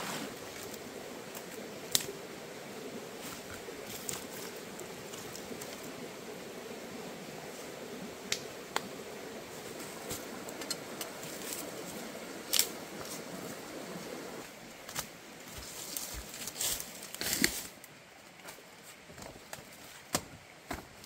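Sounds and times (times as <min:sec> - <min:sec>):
stream rushing: 0:00.0 - 0:15.6
leaves rustling underfoot: 0:00.0 - 0:20.2.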